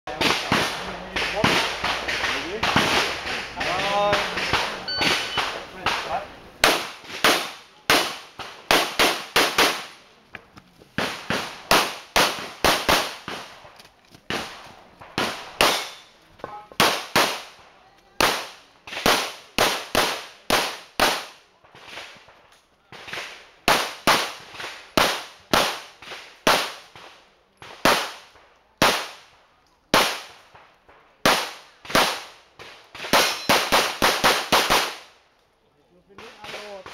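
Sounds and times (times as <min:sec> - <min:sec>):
pistol shots: 0:00.1 - 0:09.9, 0:11.0 - 0:13.4, 0:15.2 - 0:16.1, 0:33.0 - 0:35.0.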